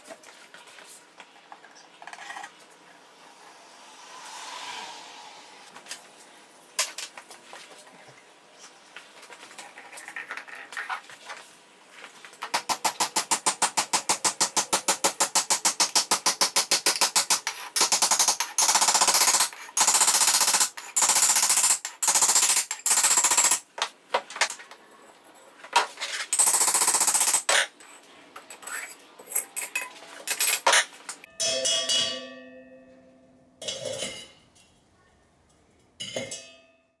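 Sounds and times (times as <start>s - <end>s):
propane burner hiss: 3.1s - 6.6s.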